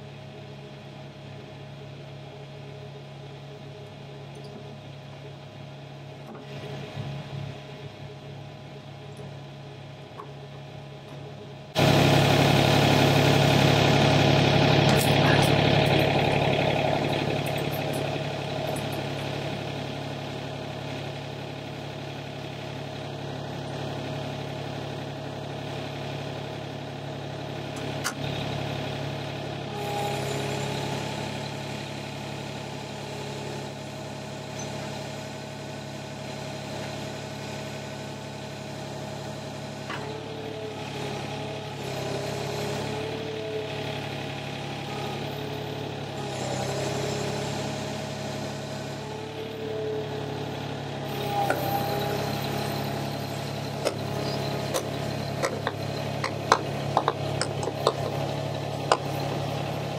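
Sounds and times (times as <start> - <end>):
excavator diesel engine running: 0.0 - 59.9
hydraulic whine: 9.0 - 26.2, 27.0 - 32.5, 38.7 - 59.9.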